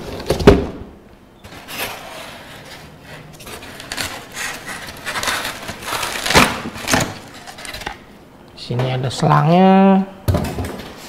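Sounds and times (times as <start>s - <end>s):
polystyrene foam scraping: 1.5s - 7.9s.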